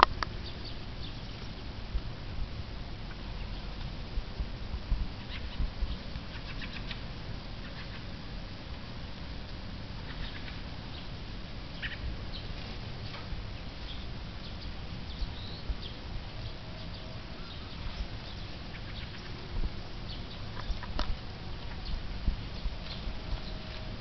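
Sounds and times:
steady low rumble: 0:00.0 - 0:24.0
birds chattering calls: 0:05.1 - 0:08.2, 0:10.0 - 0:24.0.

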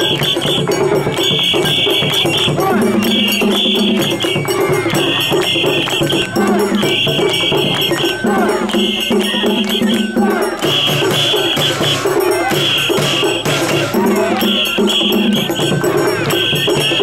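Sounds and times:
drums: 0:00.0 - 0:17.0.

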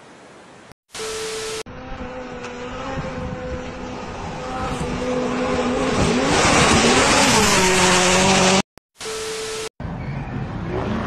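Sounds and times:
rally car engine passing: 0:01.8 - 0:08.6.

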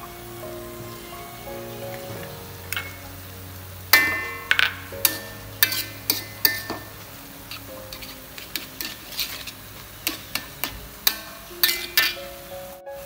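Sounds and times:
metal spatula scraping wok: 0:03.9 - 0:12.2.

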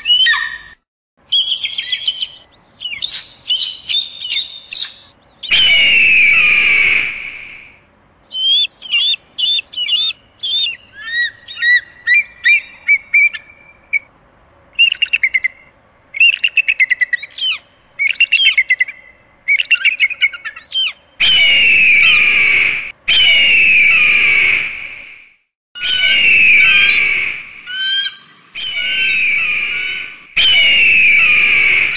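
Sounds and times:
eagle chirping and piping: 0:01.3 - 0:05.9, 0:08.2 - 0:13.4
eagle harsh screeches: 0:08.3 - 0:10.8.

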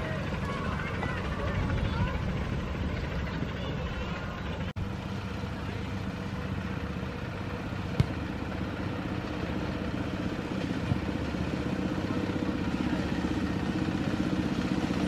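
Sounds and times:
miniature locomotive engine running: 0:00.0 - 0:07.8, 0:08.6 - 0:15.0.

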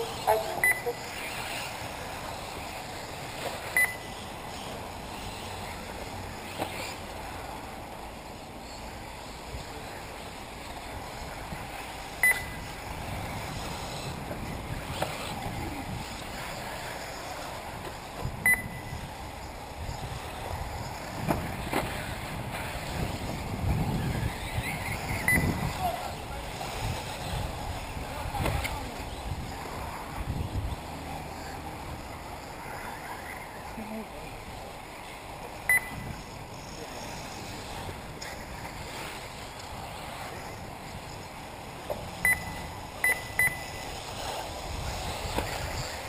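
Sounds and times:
electric rc cars racing: 0:00.0 - 0:46.0
short high timing beep: 0:00.6 - 0:01.0, 0:03.8 - 0:04.1, 0:12.2 - 0:12.6, 0:18.4 - 0:18.9, 0:25.3 - 0:25.5, 0:35.7 - 0:36.0, 0:42.2 - 0:43.8.

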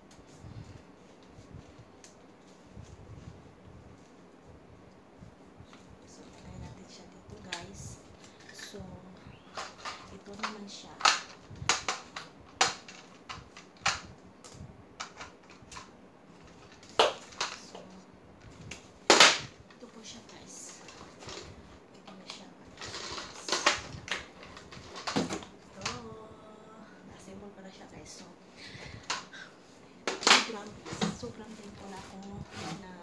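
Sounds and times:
plastic vacuum parts clicking: 0:09.5 - 0:17.8, 0:22.0 - 0:26.0.

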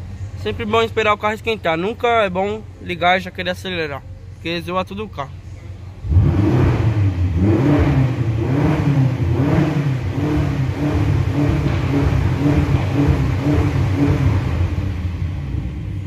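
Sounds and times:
car engine revving: 0:05.7 - 0:16.0.

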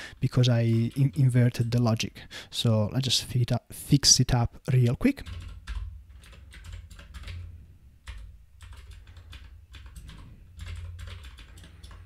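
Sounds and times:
low steady hum: 0:05.2 - 0:12.0.

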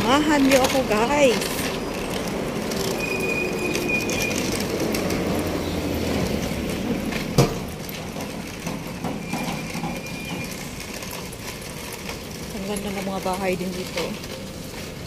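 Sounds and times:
vehicle rumbling past: 0:01.2 - 0:10.8.

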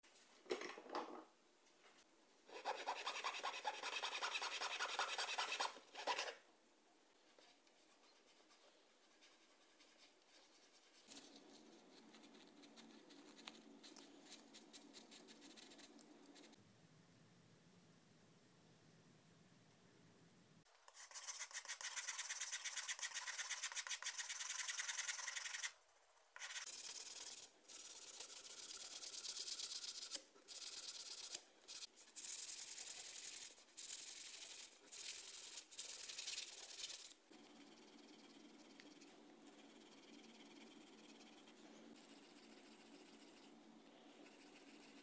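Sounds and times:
sanding block rubbing wood: 0:02.6 - 0:06.3.

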